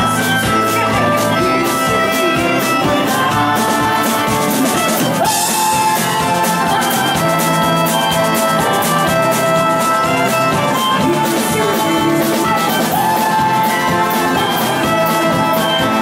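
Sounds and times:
live country band music: 0:00.0 - 0:16.0
steady drum beat: 0:00.0 - 0:16.0.

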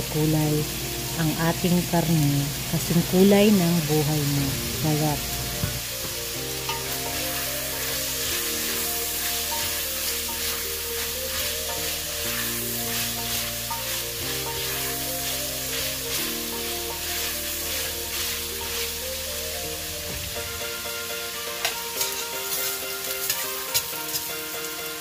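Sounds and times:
background music: 0:00.0 - 0:25.0
pork sizzling in a pot: 0:00.0 - 0:25.0
spatula stirring in a pot: 0:05.6 - 0:19.8, 0:21.2 - 0:24.6.

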